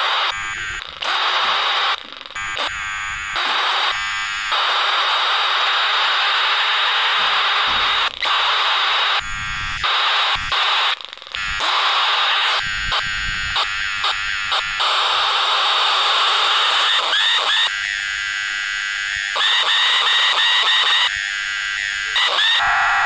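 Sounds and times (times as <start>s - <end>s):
radio hiss and static: 0.0s - 17.7s, 19.3s - 21.1s, 21.8s - 23.0s
whistling tones: 22.2s - 23.0s.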